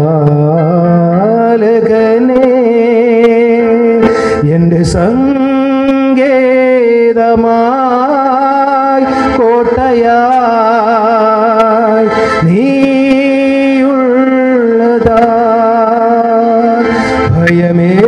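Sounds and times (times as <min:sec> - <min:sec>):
man singing into a microphone: 0:00.0 - 0:18.0
singer breathing: 0:04.0 - 0:04.5, 0:09.0 - 0:09.4, 0:12.0 - 0:12.5, 0:16.8 - 0:17.4.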